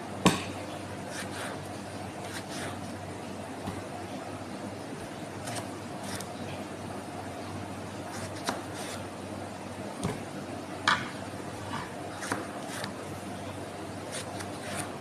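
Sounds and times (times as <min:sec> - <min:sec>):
steady low hum: 0:00.0 - 0:15.0
knife cutting tomatoes: 0:01.1 - 0:01.6, 0:02.2 - 0:02.8, 0:08.1 - 0:09.0, 0:11.7 - 0:13.0, 0:14.1 - 0:15.0.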